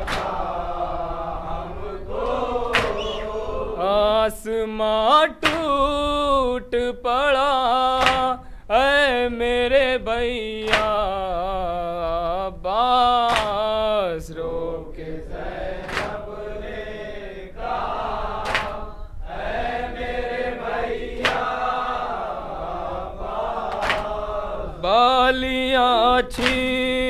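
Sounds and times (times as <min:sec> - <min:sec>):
hands slapping chests: 0:00.0 - 0:00.5, 0:02.2 - 0:03.3, 0:05.4 - 0:05.7, 0:08.0 - 0:08.4, 0:10.7 - 0:11.0, 0:13.3 - 0:13.6, 0:15.8 - 0:16.3, 0:18.4 - 0:18.8, 0:21.2 - 0:21.5, 0:23.7 - 0:24.2, 0:26.3 - 0:26.8
men chanting a dirge: 0:00.0 - 0:05.8.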